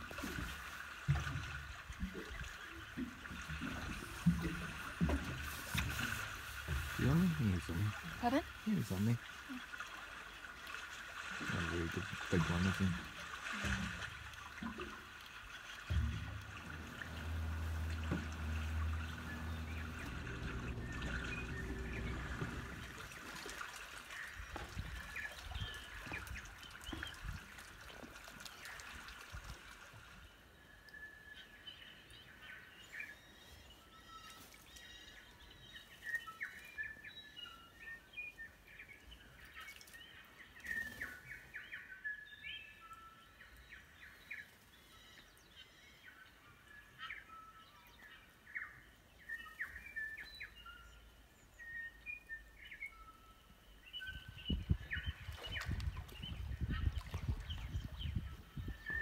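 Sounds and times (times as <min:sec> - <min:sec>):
gentle water sounds: 0:00.0 - 0:59.0
low steady hum: 0:11.5 - 0:23.9.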